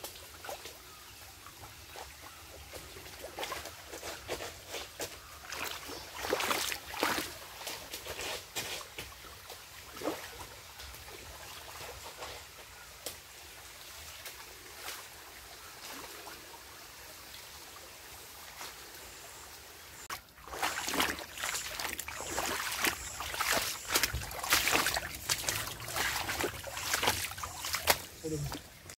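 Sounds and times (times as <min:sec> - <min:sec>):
running water hissing: 0:17.2 - 0:29.0.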